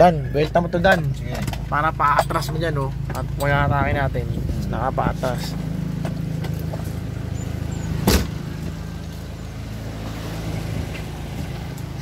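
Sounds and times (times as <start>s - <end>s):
car engine idling: 0.0s - 12.0s
car door slamming: 8.0s - 8.6s.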